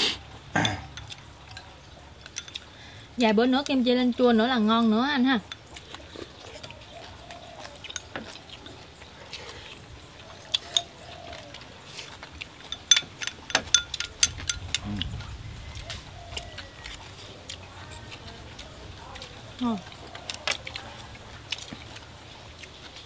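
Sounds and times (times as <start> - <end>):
chopsticks clicking on porcelain bowls: 0.8 - 2.7, 10.4 - 17.0.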